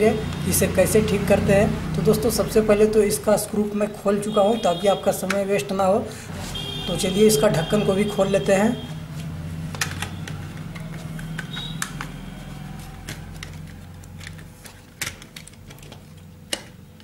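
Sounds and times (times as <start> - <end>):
plastic clicks and snaps: 9.7 - 12.2.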